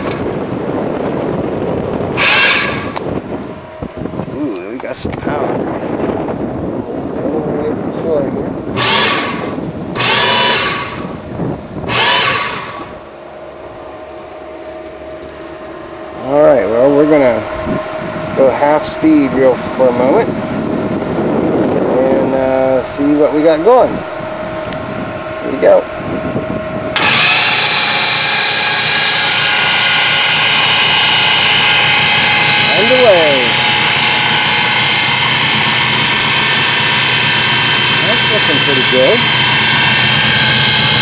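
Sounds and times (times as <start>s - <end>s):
electric motor whining: 1.9s - 6.0s, 8.6s - 41.0s
rushing noise: 2.1s - 3.9s, 8.7s - 13.9s, 15.3s - 41.0s.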